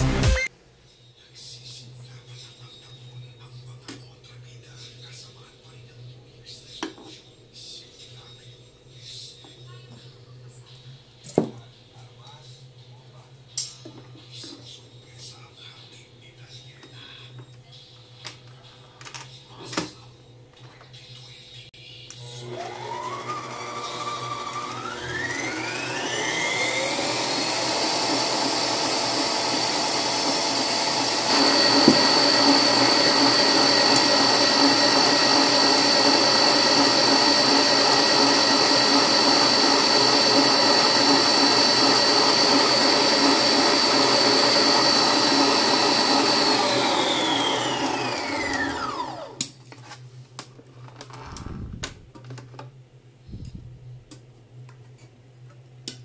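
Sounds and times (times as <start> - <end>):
stand mixer motor whining: 22.2 - 49.5.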